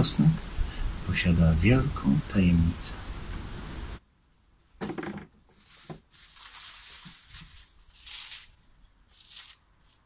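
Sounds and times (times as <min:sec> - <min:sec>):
garlic skins crackling and rustling: 0:05.4 - 0:10.0.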